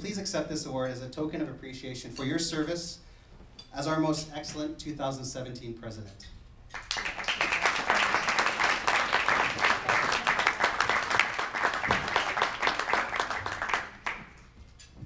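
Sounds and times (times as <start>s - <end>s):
audience applauding: 6.8s - 14.4s.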